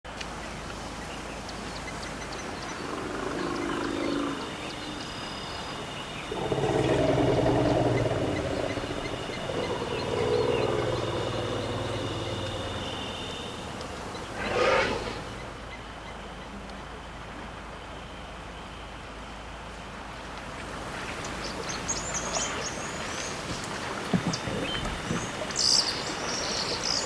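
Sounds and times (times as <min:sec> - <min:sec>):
elephants rumbling calls: 0:02.8 - 0:15.6.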